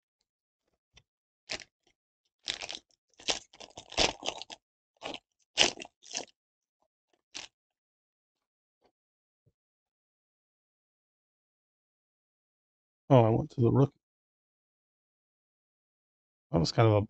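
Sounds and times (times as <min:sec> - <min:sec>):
foil wrapper crinkling and tearing: 0:01.5 - 0:01.7, 0:02.5 - 0:06.3.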